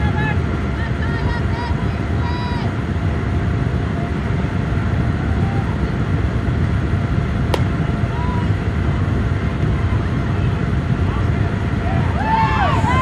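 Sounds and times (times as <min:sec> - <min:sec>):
wind rumbling on microphone: 0:00.0 - 0:13.0
sharp crack of bat: 0:07.5 - 0:07.7.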